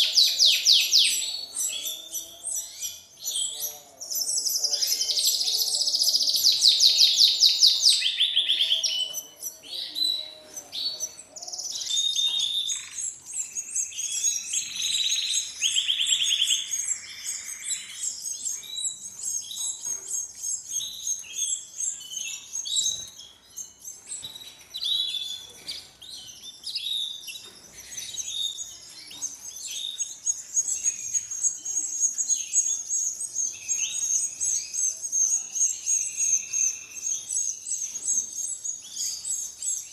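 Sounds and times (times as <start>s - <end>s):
canaries chirping and trilling: 0.0s - 39.9s
nestlings begging calls: 11.1s - 19.6s.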